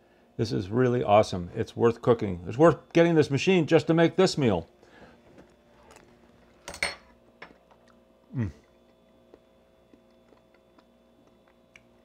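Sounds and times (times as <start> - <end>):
person humming: 8.3 - 8.7.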